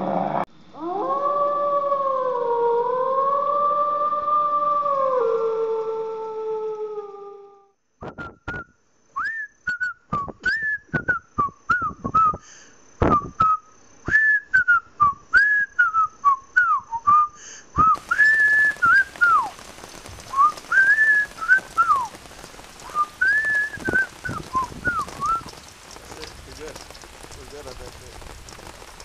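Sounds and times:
steady hiss: 8.0s - 29.0s
person whistling a tune: 8.1s - 12.4s, 13.1s - 19.5s, 20.3s - 22.1s, 22.9s - 25.5s
sharp clicks keeping time: 18.0s - 29.0s.

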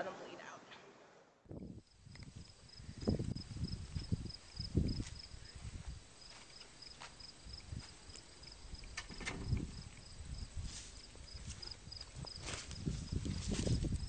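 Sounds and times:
insect chirping: 1.5s - 14.0s
low thumps and rustling: 1.5s - 14.0s
sharp clicks and knocks: 8.9s - 9.7s.

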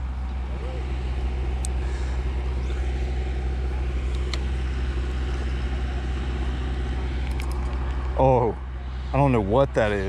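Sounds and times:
low engine hum: 0.0s - 10.0s.

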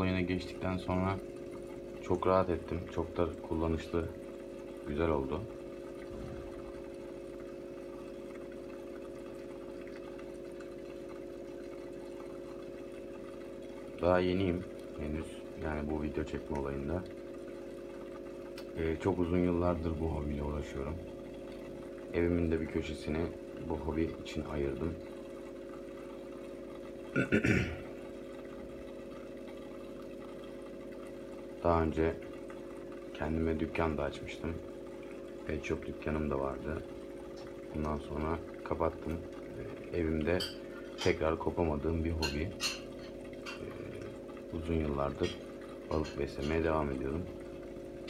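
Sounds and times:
aquarium pumps humming: 0.0s - 48.0s
faint water trickle: 0.0s - 48.0s.

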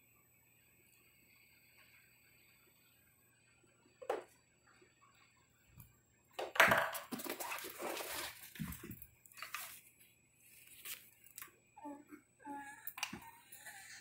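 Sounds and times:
monkeys scuffling and rustling: 7.0s - 11.2s.

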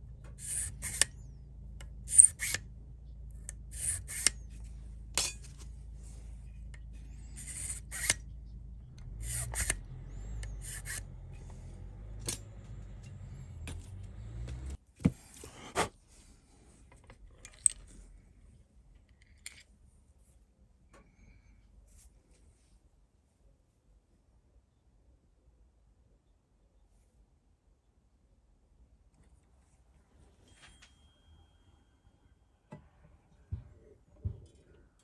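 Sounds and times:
low steady hum: 0.0s - 24.8s
blade scraping guitar nut: 0.4s - 1.2s, 2.1s - 2.7s, 3.4s - 4.6s, 7.1s - 8.2s, 9.1s - 11.1s.

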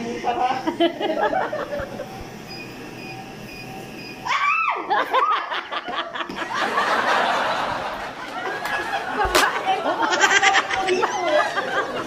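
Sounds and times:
faint machine beeps: 0.7s - 4.3s
woman crying out and laughing: 4.2s - 5.9s.

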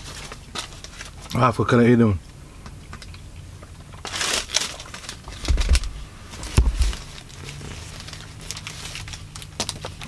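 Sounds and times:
paper wrapper crinkling: 4.0s - 10.0s
dull thumps: 5.3s - 7.2s.

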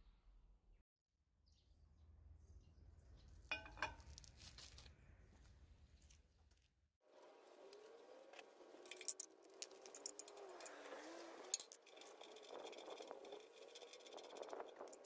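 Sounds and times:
small steel pieces rattling: 8.8s - 15.0s.

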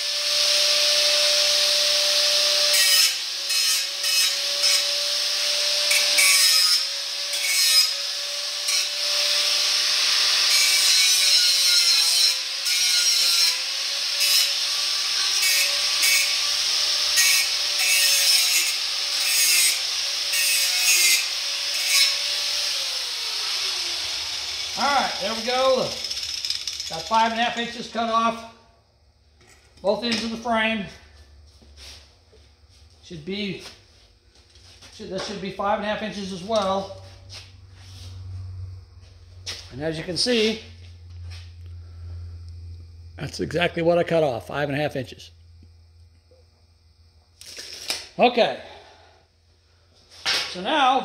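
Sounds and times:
angle grinder grinding steel: 0.0s - 28.5s
grinder motor winding down: 21.3s - 27.4s.

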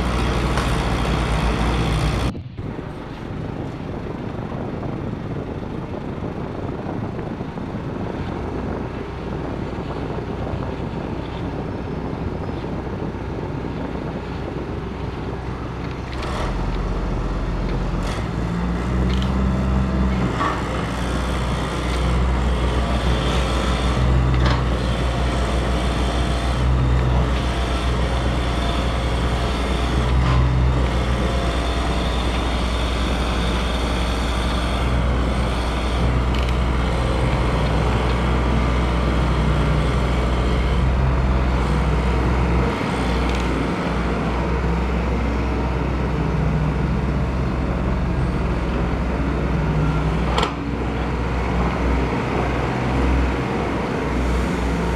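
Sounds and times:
steady low drone: 0.0s - 54.9s
toy excavator motors and gears: 19.0s - 19.5s, 20.1s - 43.9s.

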